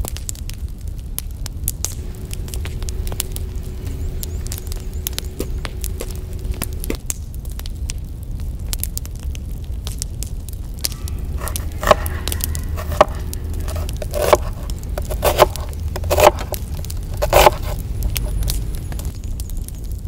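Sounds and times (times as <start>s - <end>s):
low rumble: 1.9s - 7.2s, 10.6s - 17.2s
knife slicing onion on wooden board: 2.1s - 6.9s, 11.2s - 18.7s.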